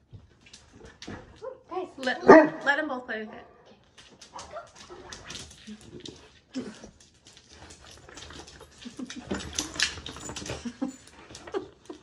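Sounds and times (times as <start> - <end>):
dogs scuffling: 0.0 - 2.8, 3.8 - 12.0.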